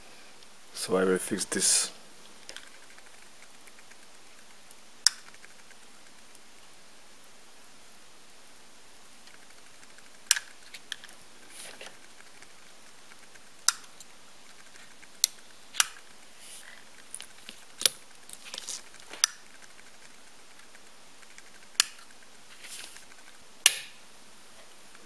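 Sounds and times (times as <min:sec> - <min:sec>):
faint rustles: 0:09.2 - 0:23.4.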